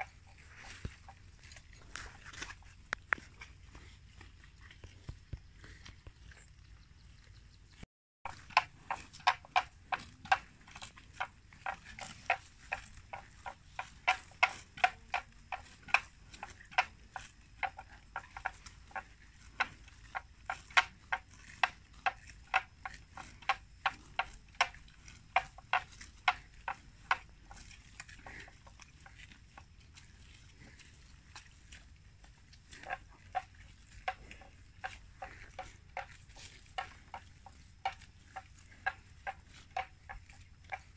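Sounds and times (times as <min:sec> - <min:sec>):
buffalo tearing grass: 0:08.3 - 0:17.4, 0:18.5 - 0:40.9.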